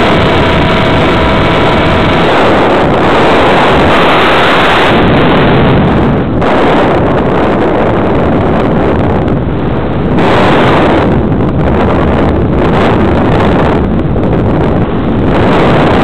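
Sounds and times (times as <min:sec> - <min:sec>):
rushing airflow: 0:00.0 - 0:16.0.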